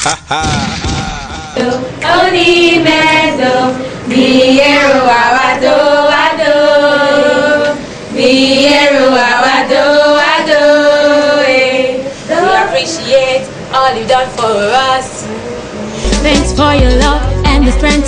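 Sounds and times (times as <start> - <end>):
children singing together: 1.6 - 13.0.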